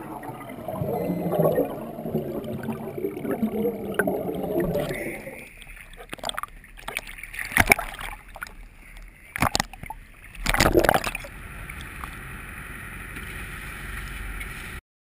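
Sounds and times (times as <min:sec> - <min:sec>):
water splashing against camera housing: 0:06.0 - 0:08.6, 0:09.4 - 0:12.2
small boat engine drone: 0:11.3 - 0:14.8.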